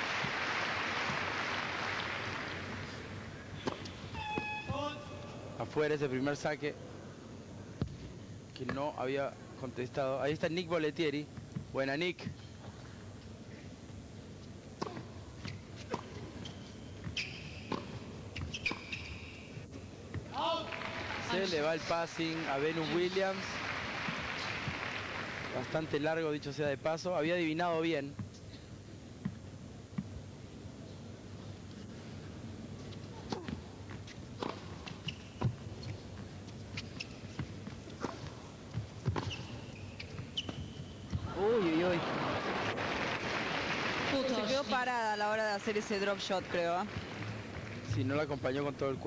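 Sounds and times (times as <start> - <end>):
sneakers squeaking on court: 3.6 - 5.0, 14.8 - 19.6, 33.3 - 41.2
tennis ball bouncing: 14.8 - 19.1, 33.3 - 41.3
racket striking tennis ball: 17.0 - 18.9, 37.4 - 39.6.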